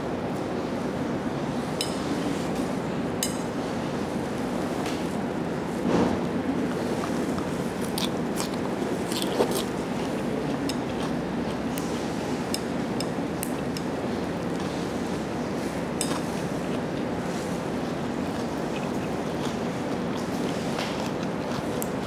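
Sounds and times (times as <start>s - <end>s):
steady background noise: 0.0s - 22.0s
chopsticks clicking on a plate: 12.5s - 14.0s.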